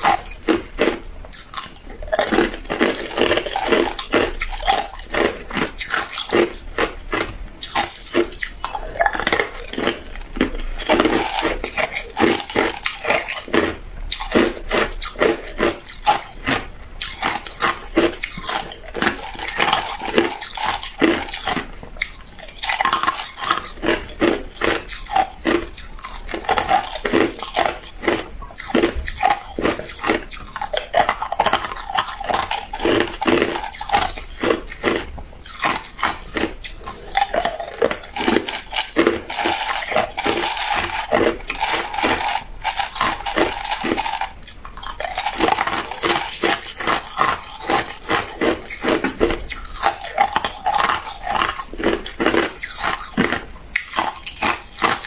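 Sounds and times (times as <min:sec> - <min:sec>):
ice cubes crunched and chewed: 0:00.0 - 0:55.0
ice cubes clinking against glass bowl: 0:22.5 - 0:55.0.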